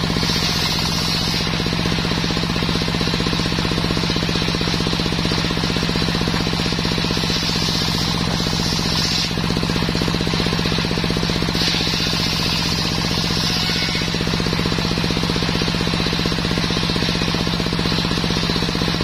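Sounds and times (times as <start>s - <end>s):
circular saw ripping board: 0.0s - 1.7s, 6.4s - 10.0s, 11.3s - 14.7s
engine thumping: 0.0s - 12.2s.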